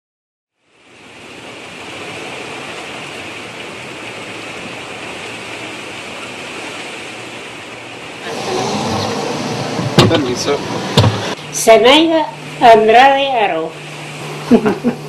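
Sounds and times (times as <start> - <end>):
steady rushing hiss: 7.9 - 12.7.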